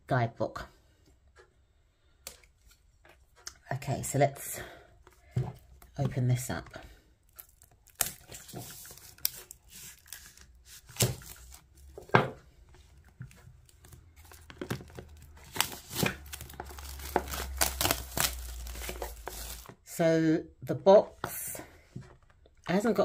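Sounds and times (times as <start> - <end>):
cellophane crackling and tearing: 7.3 - 12.0, 13.3 - 19.7.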